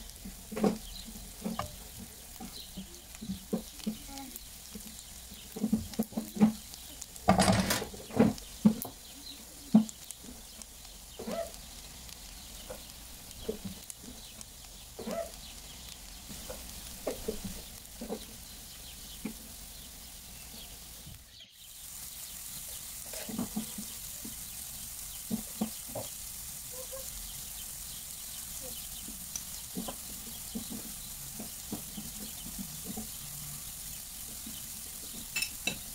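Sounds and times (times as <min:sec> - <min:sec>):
mushrooms clattering into pan: 0:00.0 - 0:19.9, 0:22.0 - 0:26.9, 0:27.6 - 0:35.9
light sizzle: 0:00.0 - 0:35.9
spatula scraping a frying pan: 0:00.2 - 0:04.1, 0:04.7 - 0:08.9, 0:22.0 - 0:27.2, 0:28.6 - 0:35.9.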